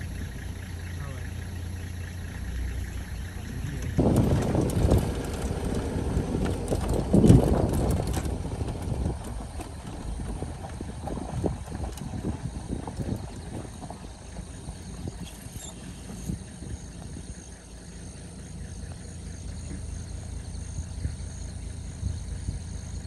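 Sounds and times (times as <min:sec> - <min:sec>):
vehicle engine rumble: 0:00.0 - 0:23.0
wind buffeting microphone: 0:03.4 - 0:23.0
knocks and rattles from bumps: 0:03.6 - 0:17.7.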